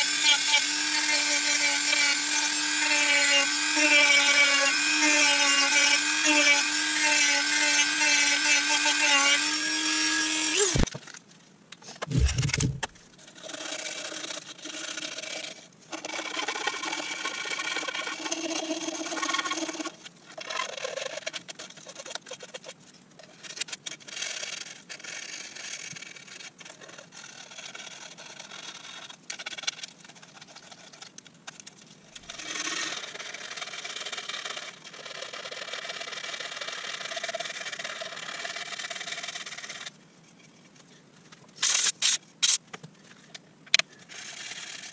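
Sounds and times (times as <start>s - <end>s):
loud thump: 12.1s - 12.9s.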